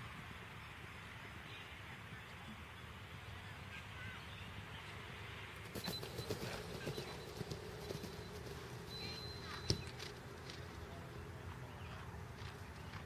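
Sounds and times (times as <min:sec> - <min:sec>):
hoofbeats on turf: 0:05.6 - 0:10.8
thin whistle-like tone: 0:05.8 - 0:10.0.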